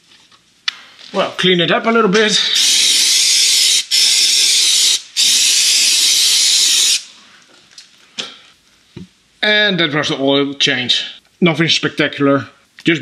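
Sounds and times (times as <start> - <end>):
aerosol spray hissing: 2.3 - 7.2.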